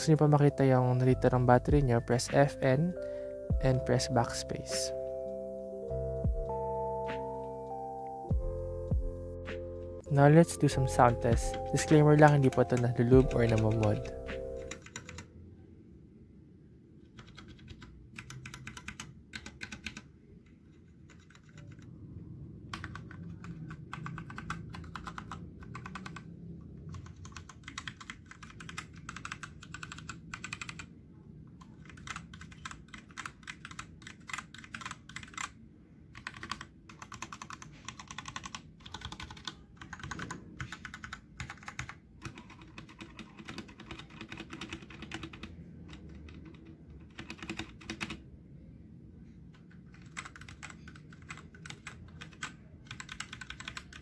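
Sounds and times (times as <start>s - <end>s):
mechanical keyboard key clacks: 20.8s - 21.9s, 31.6s - 48.2s, 49.6s - 54.0s.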